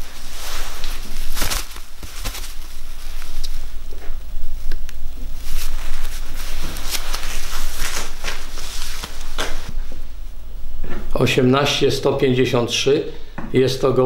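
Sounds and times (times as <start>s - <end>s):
pigeon wings rustling: 0.0s - 4.2s, 5.3s - 9.7s.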